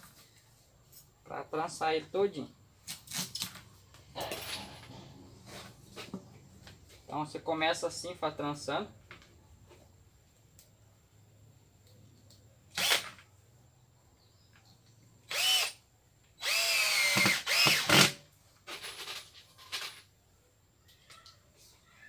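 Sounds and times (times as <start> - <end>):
power drill driving screws: 12.7 - 13.2, 15.3 - 15.8, 16.4 - 18.2.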